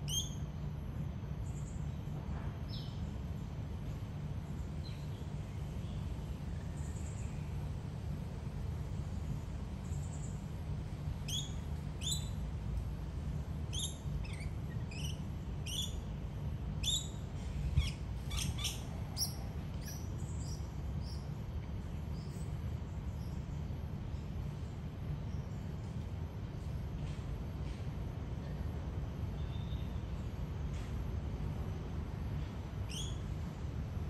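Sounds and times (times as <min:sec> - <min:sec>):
steady low rumble: 0:01.0 - 0:29.3
parrots chirping: 0:13.7 - 0:16.0, 0:17.8 - 0:20.0.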